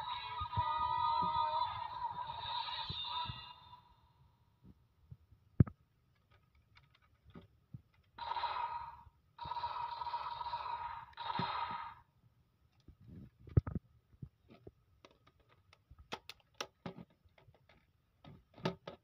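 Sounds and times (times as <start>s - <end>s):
toy electronic sound effects: 8.2s - 12.0s
plastic toy lever clicking: 15.0s - 17.8s.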